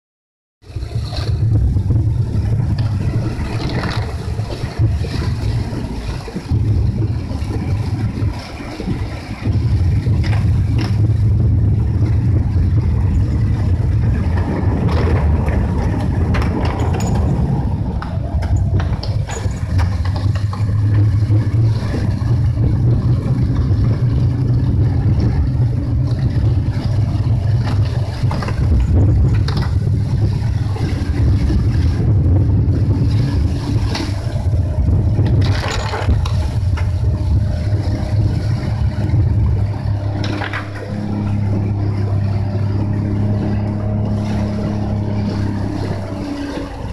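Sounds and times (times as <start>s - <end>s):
engine and tyres rumbling on wet road: 0.6s - 46.9s
windscreen wipers: 0.7s - 46.9s.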